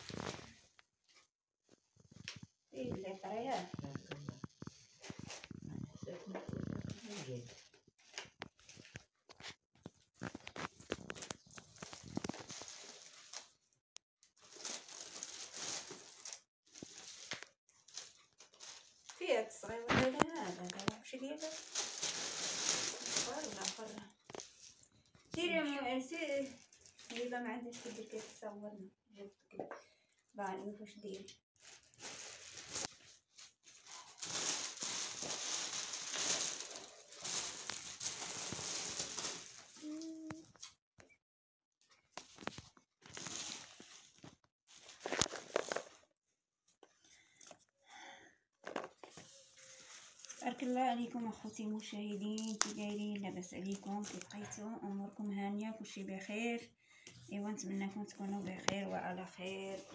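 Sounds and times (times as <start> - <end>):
bean plants rustling and crackling: 2.8 - 9.0, 10.1 - 13.5, 14.4 - 24.7, 33.8 - 40.4.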